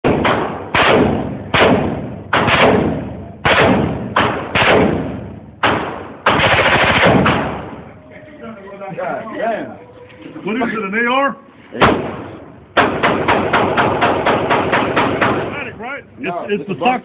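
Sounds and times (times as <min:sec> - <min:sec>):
rifle firing rapid bursts: 0:00.2 - 0:07.7, 0:12.8 - 0:15.6.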